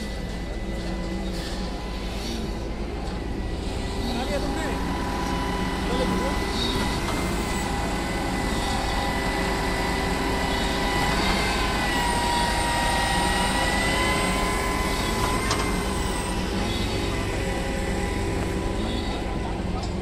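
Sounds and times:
diesel engine drone: 0:00.0 - 0:20.0
high steady whine: 0:00.0 - 0:20.0.

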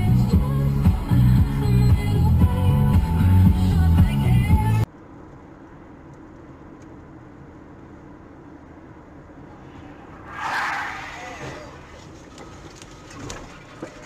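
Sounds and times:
car road and engine noise: 0:00.0 - 0:14.0
vehicle passing close by: 0:09.5 - 0:12.4.

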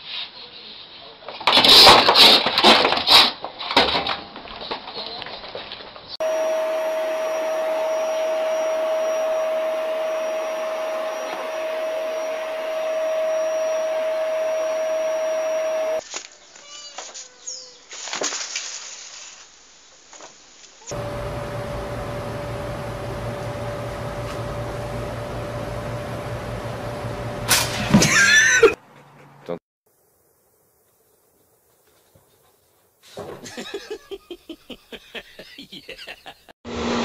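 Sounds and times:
motor whirring: 0:06.2 - 0:16.0.

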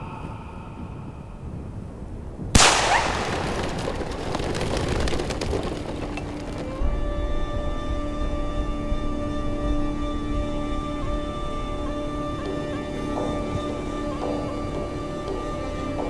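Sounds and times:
gunshot with echoing tail: 0:02.6 - 0:05.2.

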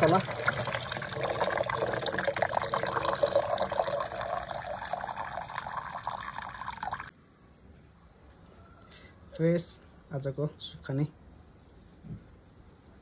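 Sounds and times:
water splashing into steel bowl: 0:00.0 - 0:07.1.

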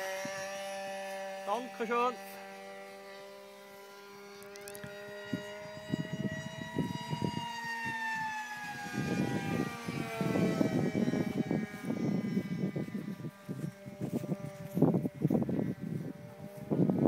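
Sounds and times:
model plane motor whining: 0:00.0 - 0:17.0
wind buffeting microphone: 0:04.7 - 0:17.0.

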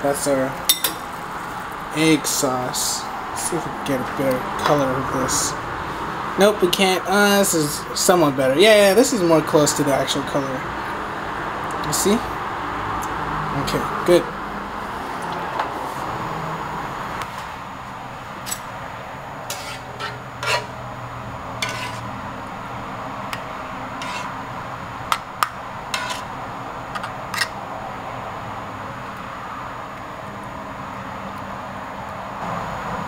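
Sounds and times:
steady background hum: 0:00.0 - 0:32.5
spoon clinking against pan: 0:00.7 - 0:01.0.

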